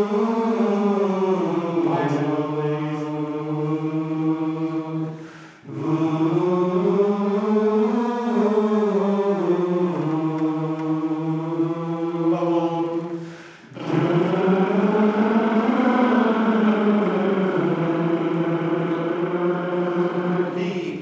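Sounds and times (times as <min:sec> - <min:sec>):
men's chorus singing held notes: 0:00.0 - 0:21.0
quick breath: 0:05.1 - 0:05.7, 0:13.2 - 0:13.8.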